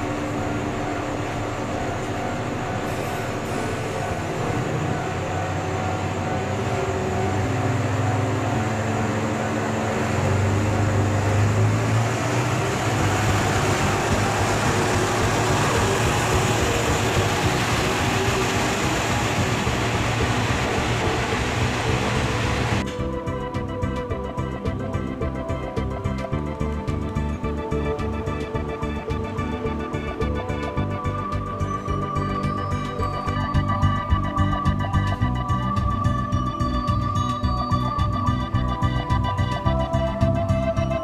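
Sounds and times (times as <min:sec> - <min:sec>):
diesel engine revving: 0:00.0 - 0:22.9.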